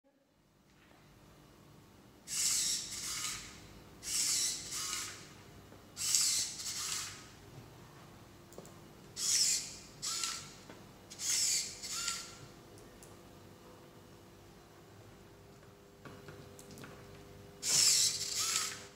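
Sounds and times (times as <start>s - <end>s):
servo motors whirring: 2.3s - 5.3s, 6.0s - 7.3s, 9.2s - 10.5s, 11.1s - 12.4s, 17.6s - 18.9s.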